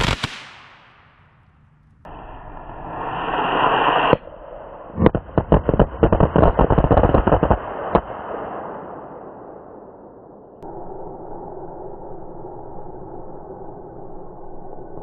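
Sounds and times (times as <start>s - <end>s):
firework hiss: 2.1s - 8.0s
firecracker bangs: 4.9s - 9.3s.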